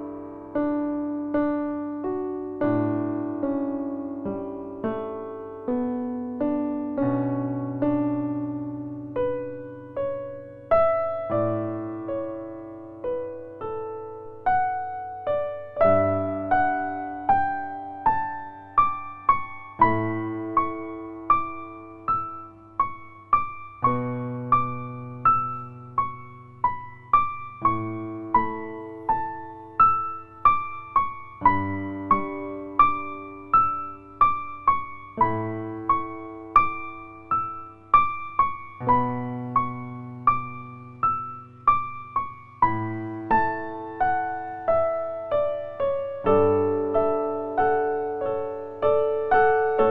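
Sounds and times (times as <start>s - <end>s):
electric piano melody: 0.0s - 49.9s.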